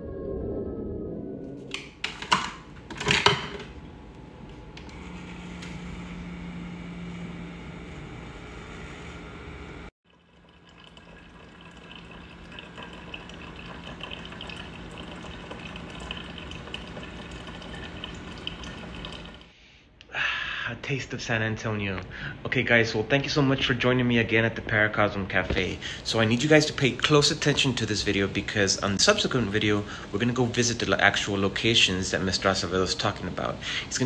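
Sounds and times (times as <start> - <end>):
coffee maker pump hum: 2.1 - 19.5
coffee streaming into mug: 10.1 - 19.5.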